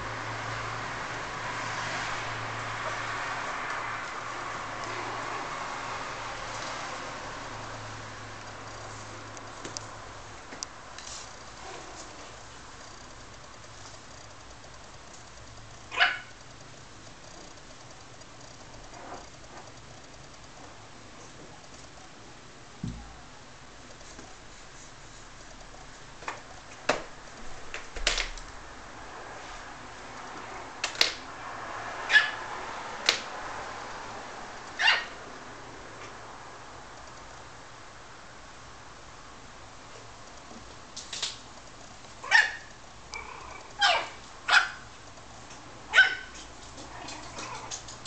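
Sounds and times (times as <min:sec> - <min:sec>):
dog barking: 0:15.9 - 0:16.3, 0:32.1 - 0:32.4, 0:34.8 - 0:35.2, 0:42.2 - 0:42.7, 0:43.8 - 0:44.8, 0:45.9 - 0:46.4
dog yelp: 0:15.9 - 0:16.4, 0:32.1 - 0:32.4, 0:34.8 - 0:35.2, 0:42.2 - 0:44.8, 0:45.9 - 0:47.7
puppies scuffling on floor: 0:46.3 - 0:48.0.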